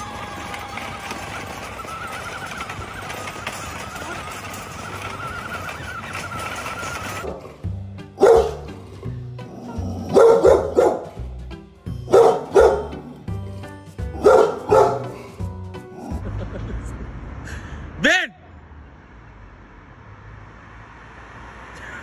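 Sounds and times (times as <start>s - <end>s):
background music: 0.0s - 16.9s
dog barking: 8.2s - 8.7s, 10.0s - 11.2s, 12.1s - 13.1s, 14.2s - 15.3s.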